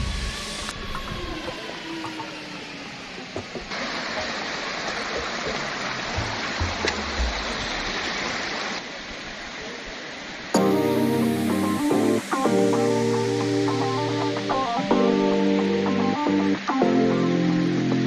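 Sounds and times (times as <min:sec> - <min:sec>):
rushing water hiss: 0:03.6 - 0:18.0.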